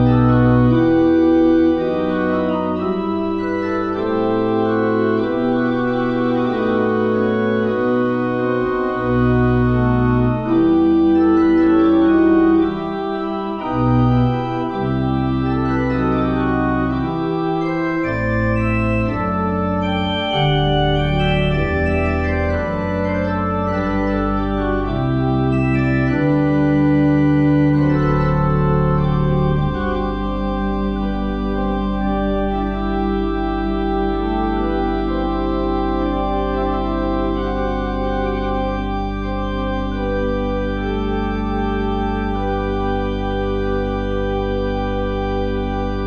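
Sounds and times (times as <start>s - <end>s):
church organ chords: 0.0s - 46.0s.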